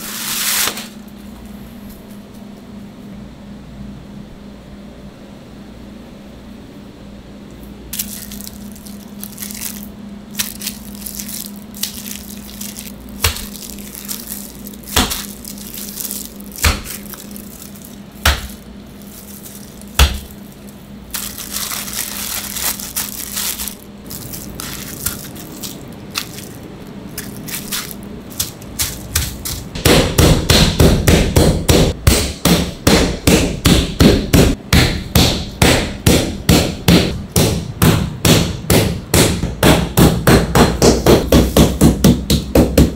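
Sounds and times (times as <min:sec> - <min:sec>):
plastic wrap crinkling: 0:07.9 - 0:29.8
meat pounder thudding: 0:08.0 - 0:20.5, 0:27.2 - 0:42.9.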